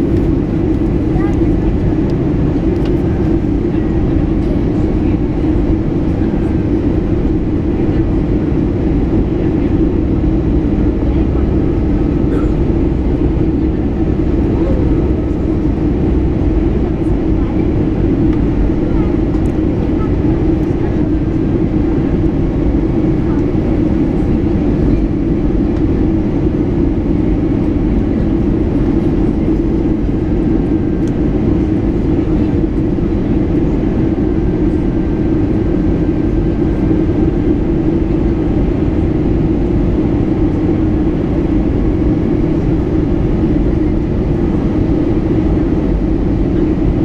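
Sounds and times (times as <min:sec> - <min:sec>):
low engine drone: 0:00.0 - 0:47.0
rushing airflow: 0:00.0 - 0:47.0.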